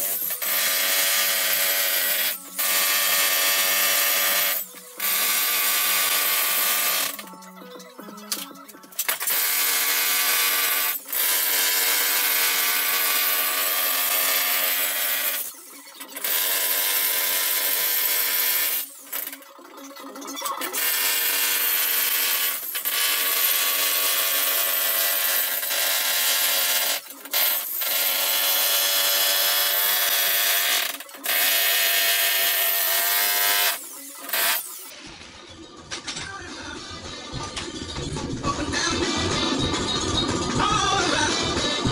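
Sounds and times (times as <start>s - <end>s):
jackhammer chiselling concrete: 0.0s - 7.2s, 9.2s - 15.5s, 16.2s - 18.9s, 20.7s - 34.7s.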